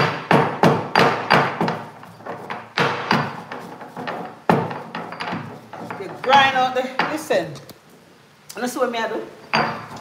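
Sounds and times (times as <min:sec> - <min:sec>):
stone pestle knocking in mortar: 0:00.0 - 0:07.4.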